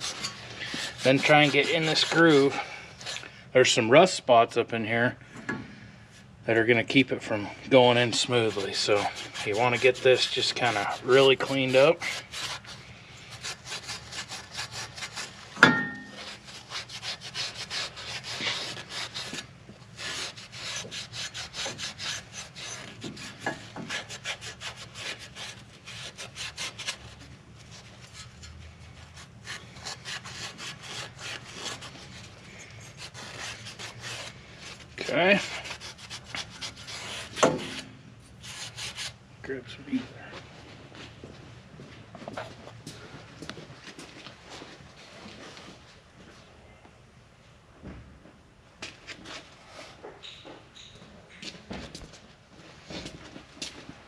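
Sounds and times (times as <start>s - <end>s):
abrasive pad scrubbing metal: 0.0s - 2.6s, 7.7s - 27.0s
metallic clink: 15.6s - 16.2s.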